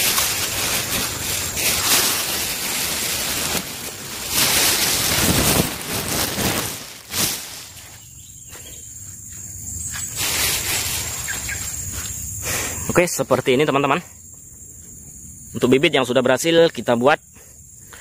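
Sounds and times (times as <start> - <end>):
plastic sheeting rustling and crinkling: 0.0 - 8.2, 9.8 - 12.2
crickets trilling: 0.0 - 18.0.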